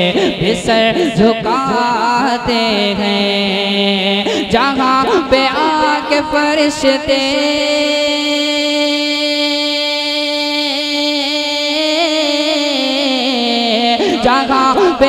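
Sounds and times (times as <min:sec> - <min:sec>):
man singing unaccompanied: 0:00.0 - 0:15.0.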